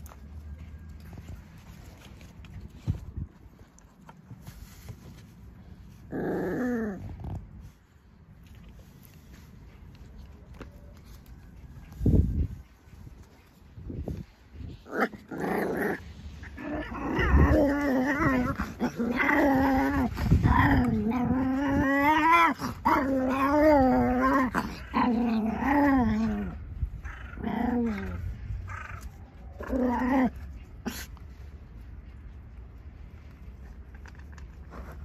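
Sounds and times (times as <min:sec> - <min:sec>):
dog growling: 0:14.8 - 0:29.0.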